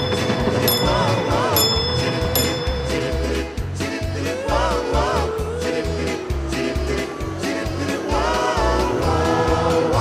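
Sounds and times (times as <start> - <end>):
bell-like chime: 0.0 - 3.8.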